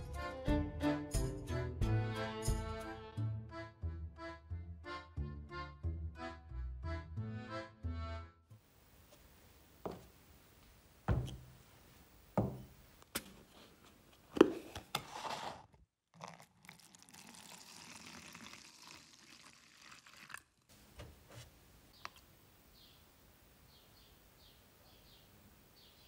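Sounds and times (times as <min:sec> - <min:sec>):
liquid pouring into plastic cup: 0:16.1 - 0:20.7.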